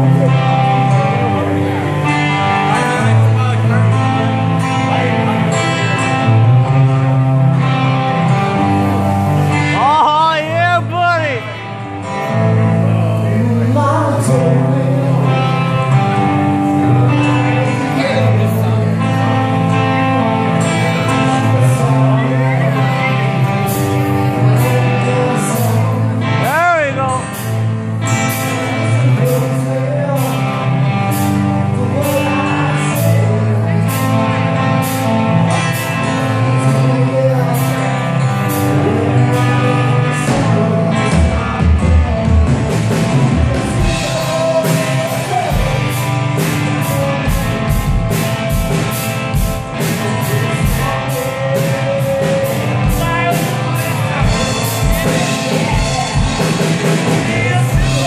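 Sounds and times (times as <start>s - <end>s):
live rock band playing: 0.0s - 58.0s
person singing: 0.0s - 58.0s
heavy drum and bass beat: 40.2s - 58.0s.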